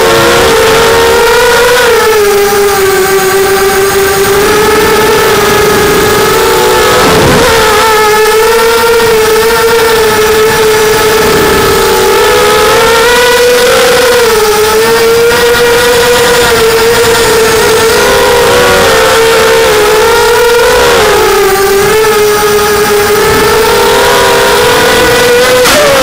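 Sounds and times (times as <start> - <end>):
quadcopter motors whining: 0.0 - 26.0.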